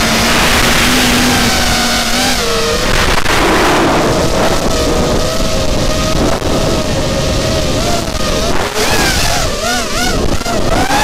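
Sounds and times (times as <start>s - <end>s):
drone motors whining: 0.0s - 11.0s
wind on microphone: 0.0s - 11.0s.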